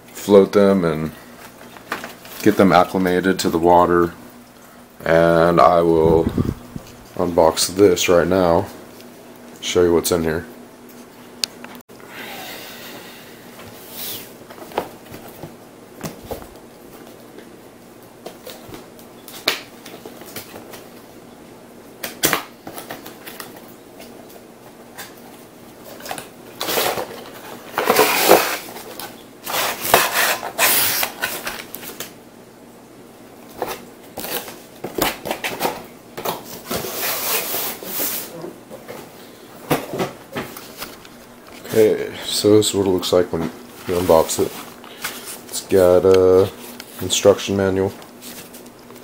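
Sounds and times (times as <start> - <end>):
cardboard and packaging rustling: 1.2 - 3.5, 13.6 - 17.4, 22.0 - 32.2, 33.4 - 49.0.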